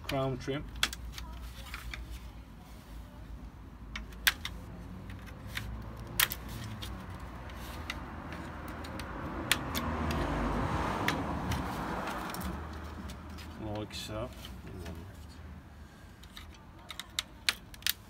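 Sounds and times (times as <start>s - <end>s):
rustling scrape: 6.4s - 8.6s
plastic clicks and snaps: 16.2s - 18.0s.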